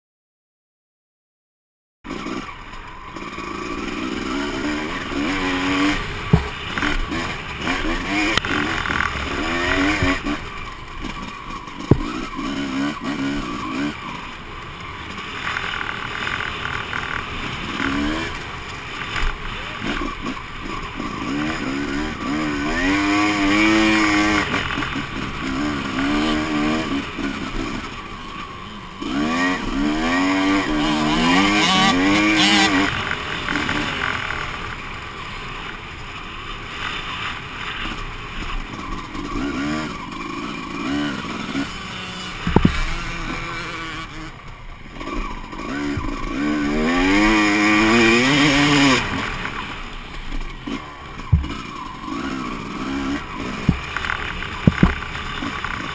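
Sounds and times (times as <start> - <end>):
two-stroke motocross engine revving: 2.1 - 55.9
sharp knock: 11.9 - 12.1, 54.6 - 55.0.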